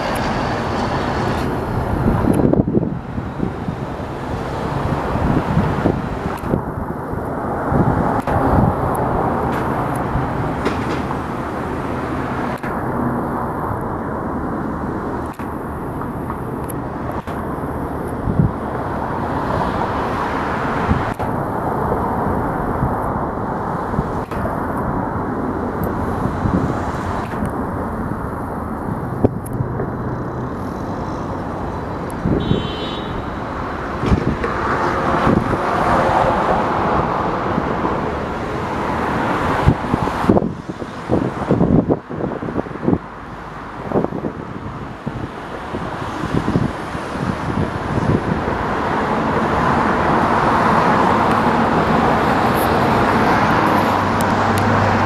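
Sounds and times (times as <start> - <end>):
train wheels rumbling on rails: 0.0 - 32.2
train knocks and clanks: 8.1 - 11.4.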